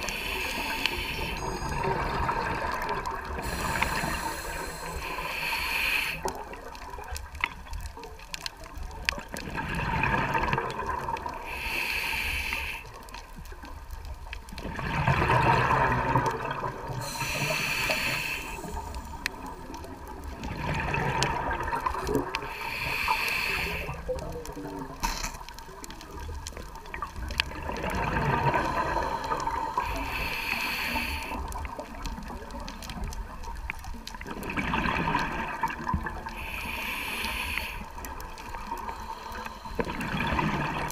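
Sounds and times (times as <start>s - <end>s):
regulator inhale hiss: 0.0s - 2.1s, 3.3s - 6.5s, 11.4s - 13.4s, 17.0s - 19.7s, 22.3s - 24.1s, 28.5s - 31.7s, 36.2s - 40.2s
exhaled bubbles gushing: 0.0s - 5.3s, 6.2s - 11.6s, 13.8s - 37.2s, 37.8s - 40.9s.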